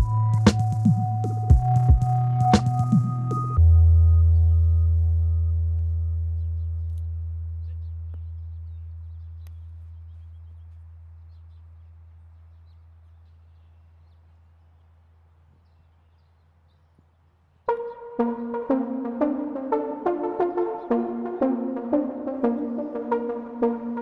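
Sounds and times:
deep bass note: 0.0s - 11.8s
faint bird chirps: 0.0s - 18.2s.

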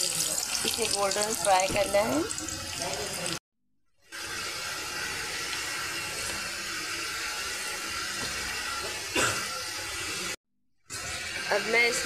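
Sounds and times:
onions sizzling in hot oil: 0.0s - 3.4s.

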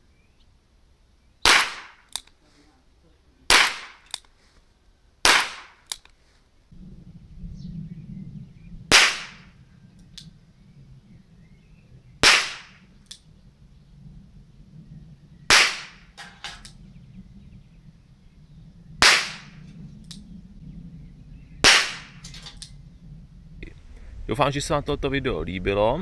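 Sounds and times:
revolver shots cracking: 1.4s - 2.3s, 3.5s - 4.2s, 5.2s - 6.0s, 8.9s - 10.3s, 12.2s - 13.3s, 15.5s - 16.8s, 19.0s - 20.2s, 21.6s - 22.8s
low rumble: 6.7s - 26.0s.

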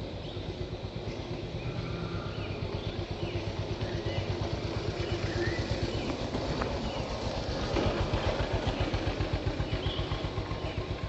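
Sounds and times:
engine running with pulsing beat: 0.0s - 11.0s
faint bird chirps: 9.6s - 10.9s.

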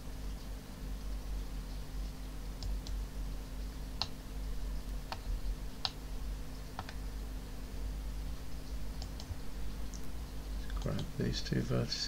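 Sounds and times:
low electrical hum: 0.0s - 12.0s
mouse and keyboard clicks: 6.8s - 7.0s.

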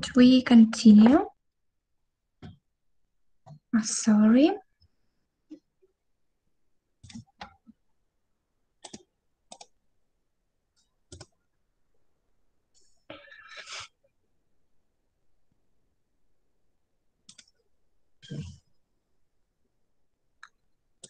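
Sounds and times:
computer mouse clicking: 7.0s - 7.6s, 8.8s - 9.8s, 10.8s - 11.4s, 17.3s - 17.6s.

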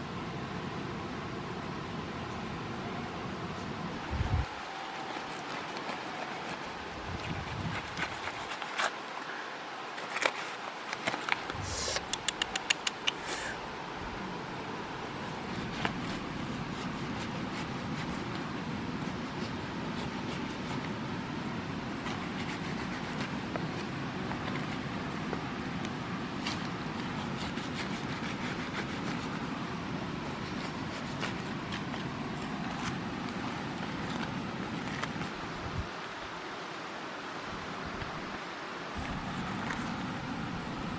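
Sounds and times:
rustle: 0.0s - 40.9s
sharp clicks: 11.9s - 13.2s.

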